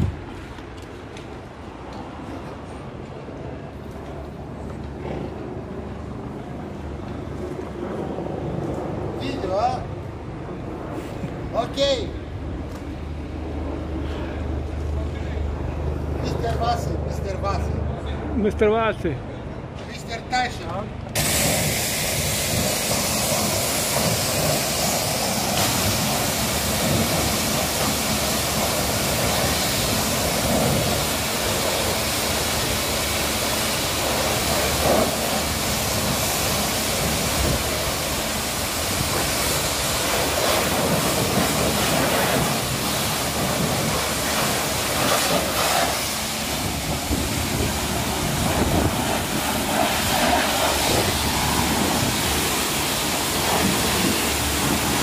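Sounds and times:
pressure washer spraying water: 21.2 - 55.0.

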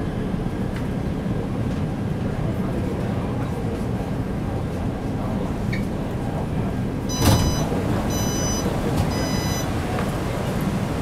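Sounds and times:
train car hum: 0.0 - 11.0
train doors releasing knock: 7.1 - 9.5
electronic door-warning beeps: 7.1 - 9.7.

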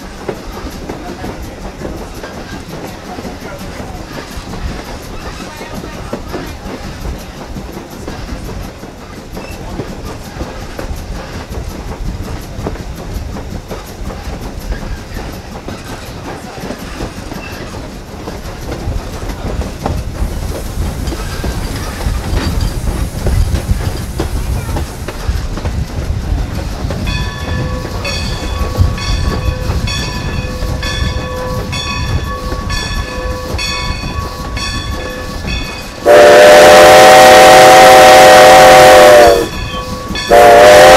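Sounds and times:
steam locomotive rumbling: 0.0 - 40.9
locomotive bell ringing: 27.1 - 36.1, 38.7 - 40.9
steam whistle: 36.0 - 40.9.

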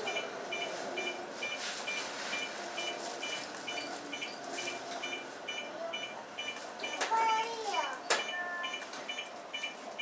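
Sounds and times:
electronic double-tone beeps: 0.0 - 7.1, 8.0 - 10.0
train standing at platform: 0.0 - 10.0.

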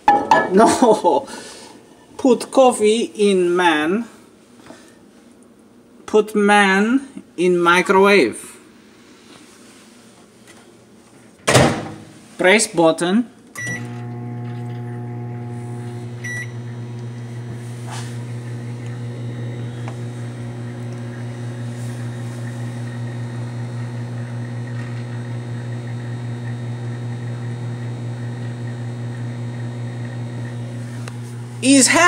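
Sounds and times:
microwave oven humming: 13.6 - 32.0.

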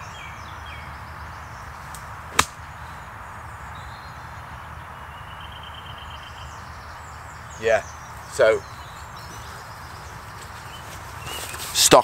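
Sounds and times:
golf club striking ball: 2.3 - 2.6.

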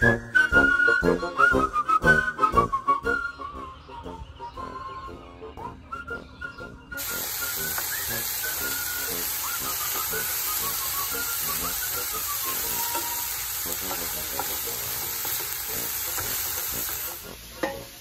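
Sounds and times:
vegetables sizzling in a frying pan: 7.0 - 18.0
wooden spoon stirring in a pan: 7.0 - 18.0.

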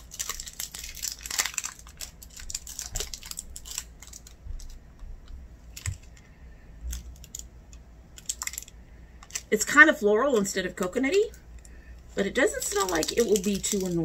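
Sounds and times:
packaging crinkling and rustling: 0.0 - 7.5, 8.2 - 9.6, 12.2 - 14.0.

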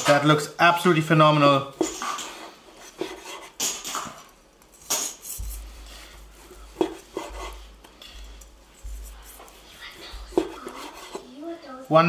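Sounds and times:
knife slicing steak: 4.8 - 11.3.

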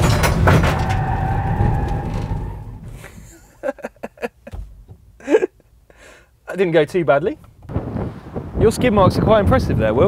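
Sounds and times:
tyres squealing: 0.0 - 3.4
road noise: 0.0 - 3.7, 4.7 - 10.0
man laughing: 3.0 - 5.7.

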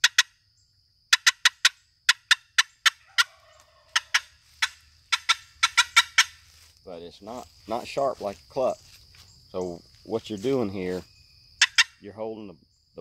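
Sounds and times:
turkey call clucks: 0.0 - 0.4, 1.1 - 6.6, 11.6 - 12.1.

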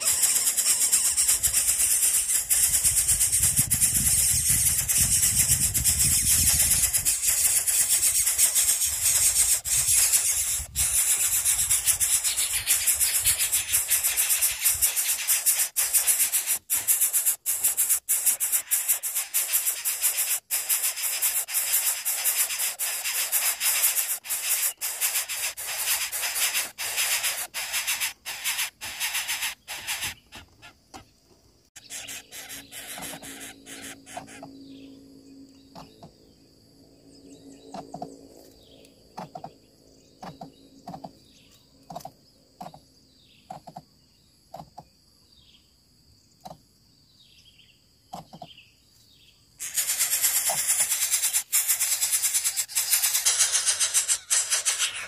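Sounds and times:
nestlings rasping hiss: 0.0 - 30.7, 31.8 - 34.5, 49.6 - 55.0
bird chirps: 0.0 - 31.1, 31.8 - 55.0.

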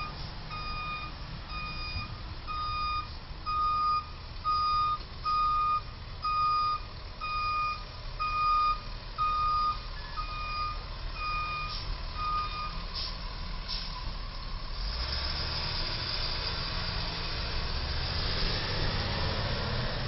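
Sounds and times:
truck reversing alarm beeps: 0.0 - 14.2
truck engine: 0.0 - 20.0
faint short hisses: 13.0 - 14.0.

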